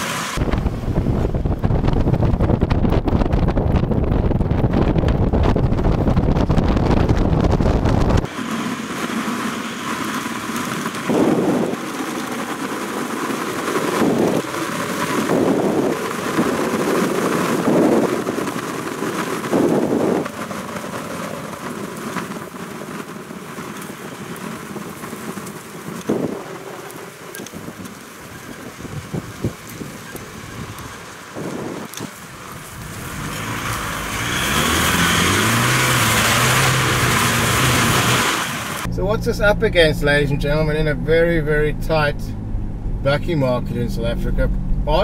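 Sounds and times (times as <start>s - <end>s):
vehicle driving over sand: 0.0s - 45.0s
wind buffeting microphone: 0.4s - 8.3s, 10.8s - 22.0s, 24.2s - 33.2s.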